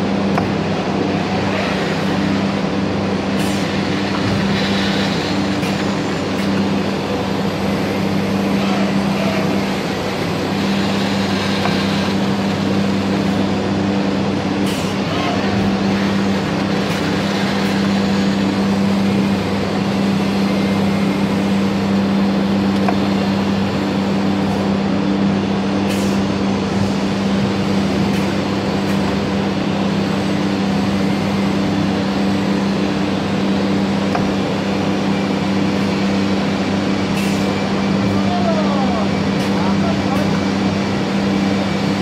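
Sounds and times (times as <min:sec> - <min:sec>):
router machine running: 0:00.0 - 0:24.9.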